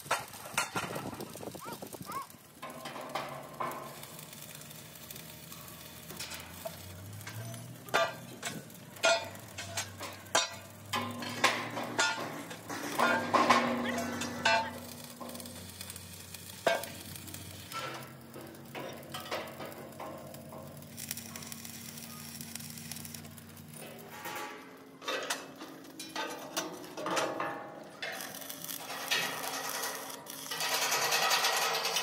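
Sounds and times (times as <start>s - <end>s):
arc welding crackling: 0.0s - 32.0s.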